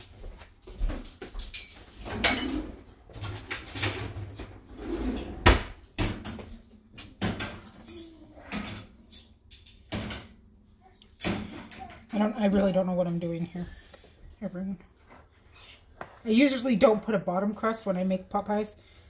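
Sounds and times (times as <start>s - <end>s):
cutlery clattering: 1.4s - 4.5s, 5.2s - 10.4s, 11.2s - 12.1s
drawer opening: 2.0s - 6.4s.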